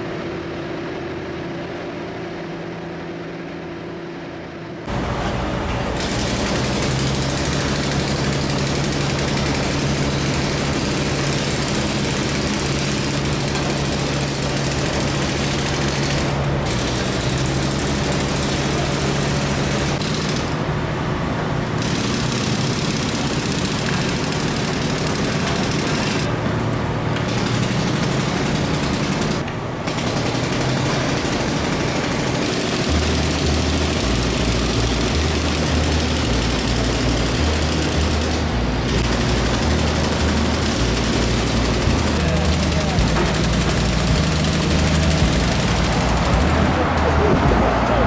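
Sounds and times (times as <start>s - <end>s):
heavy site engines running: 0.0s - 48.0s
demolition breaker hammering masonry: 6.0s - 20.5s, 27.1s - 48.0s.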